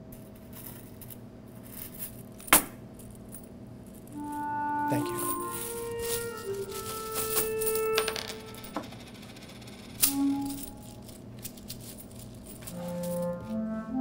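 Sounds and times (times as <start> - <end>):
coins clinking in a palm: 0.2 - 13.4
soft woodwind background music: 4.2 - 8.8, 10.0 - 11.1, 12.7 - 14.0.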